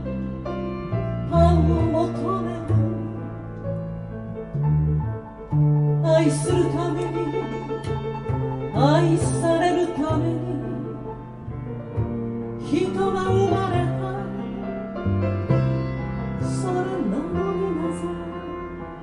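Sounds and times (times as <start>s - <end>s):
double bass playing held notes: 0.0s - 19.0s.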